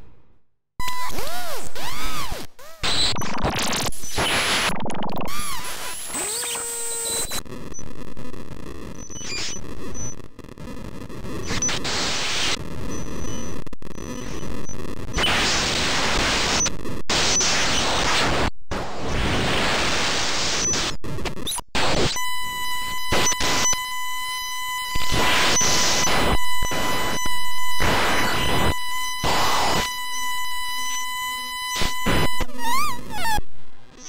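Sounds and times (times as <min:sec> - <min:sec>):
harsh electronic hiss: 0:11.4 - 0:20.9, 0:21.8 - 0:32.7
high-pitched electronic tone: 0:22.2 - 0:33.4.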